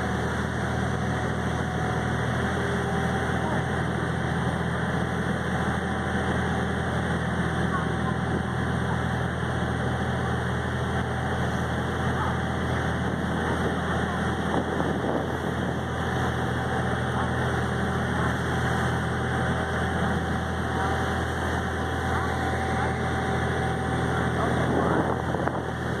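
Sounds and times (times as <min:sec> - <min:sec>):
churning wake water: 0:00.0 - 0:26.0
ferry engine droning: 0:00.0 - 0:26.0.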